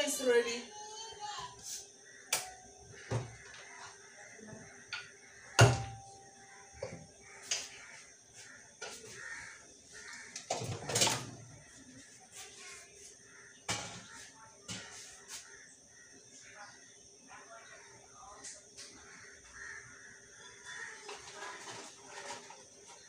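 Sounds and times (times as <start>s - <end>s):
kitchen knocks and clatter: 2.4s - 3.8s, 4.5s - 6.2s, 10.3s - 11.6s, 13.6s - 15.0s.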